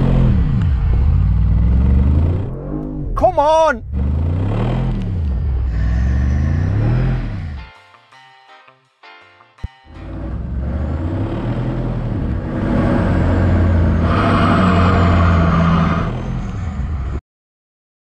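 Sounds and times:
off-road engines revving hard: 0.0 - 2.5, 3.8 - 7.6, 10.0 - 17.2.

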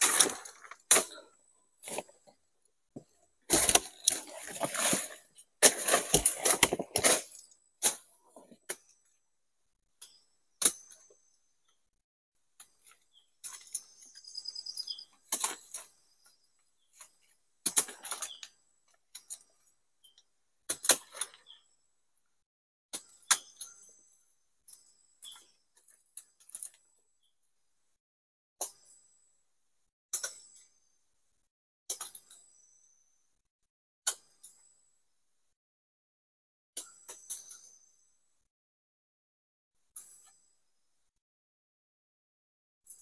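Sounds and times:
palm leaves rustling and crackling: 0.0 - 1.1, 3.5 - 7.5.

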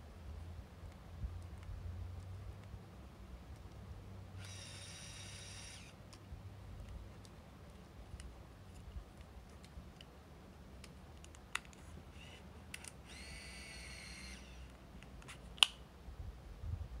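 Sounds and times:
lens motor whirring: 4.4 - 6.0, 12.1 - 15.4.

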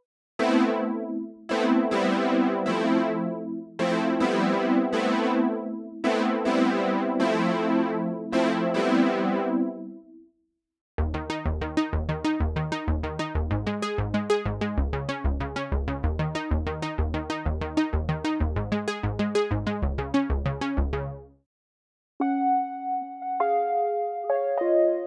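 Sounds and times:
synth arpeggio: 0.4 - 9.9, 11.0 - 14.7, 16.1 - 21.0, 22.2 - 25.0
synth bass line: 11.0 - 21.2.

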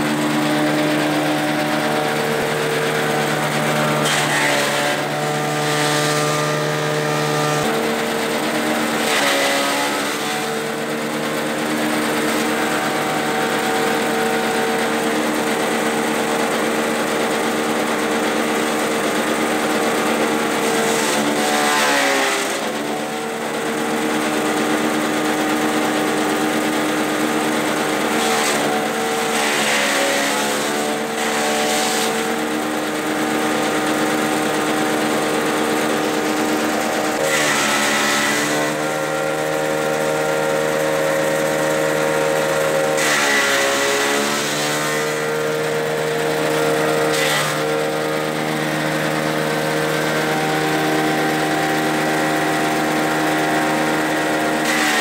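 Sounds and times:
small gasoline engine running: 0.0 - 55.0
grass chopping: 0.1 - 10.6, 20.6 - 22.9, 27.9 - 34.9, 35.5 - 48.1, 48.7 - 55.0.

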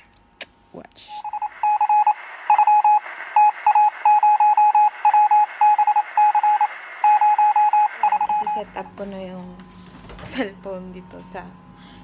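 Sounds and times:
electronic morse-like beeping: 1.2 - 9.0.

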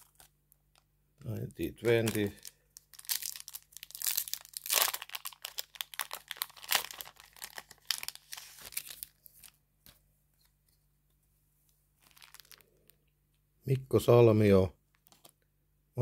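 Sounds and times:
foil wrapper tearing and crinkling: 1.8 - 9.6, 12.0 - 12.8.

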